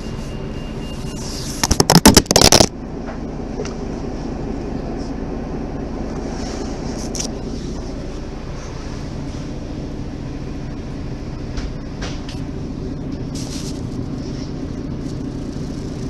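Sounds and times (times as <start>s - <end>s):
bus diesel engine idling: 0.0s - 1.7s, 2.7s - 16.0s
loud burst of rough noise: 1.3s - 2.8s.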